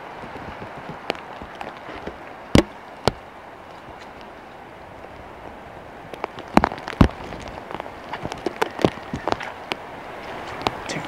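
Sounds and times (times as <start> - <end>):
footsteps knocking and thudding: 0.3 - 3.2, 6.2 - 9.5.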